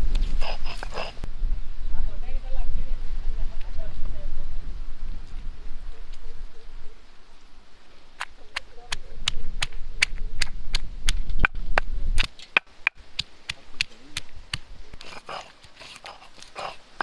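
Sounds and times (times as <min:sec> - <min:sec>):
stone grinding rumble: 0:14.2 - 0:17.0.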